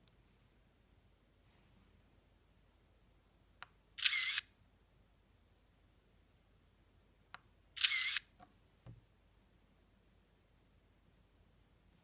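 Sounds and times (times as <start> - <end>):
camera shutter sound: 4.0 - 4.5, 7.8 - 8.3.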